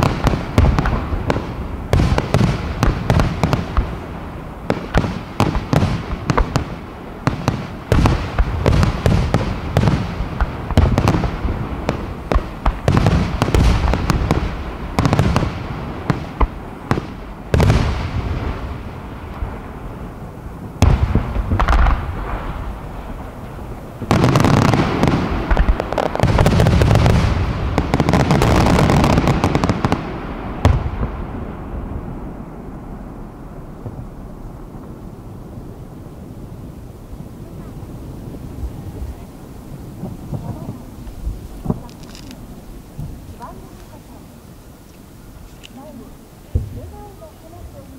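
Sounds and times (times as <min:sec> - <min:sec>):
firework shells bursting: 0:39.9 - 0:44.1.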